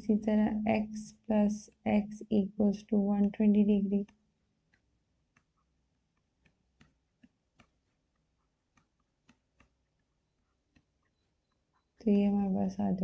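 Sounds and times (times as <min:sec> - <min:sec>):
stylus tapping on tablet screen: 0:03.2 - 0:12.0.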